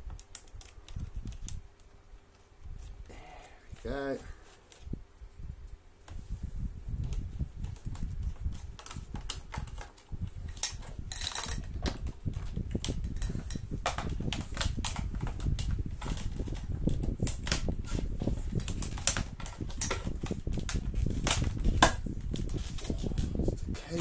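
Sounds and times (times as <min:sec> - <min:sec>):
plastic parts clicking and knocking: 0:07.1 - 0:17.8, 0:18.5 - 0:23.3.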